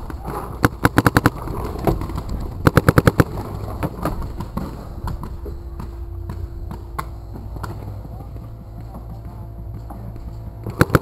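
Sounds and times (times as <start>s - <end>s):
paintball marker shots: 0.3s - 5.4s, 10.6s - 11.0s.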